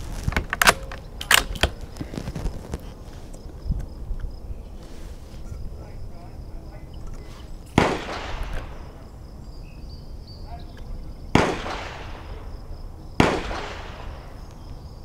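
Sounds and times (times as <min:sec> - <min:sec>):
gunshots with echo: 0:07.7 - 0:09.1, 0:11.3 - 0:14.5.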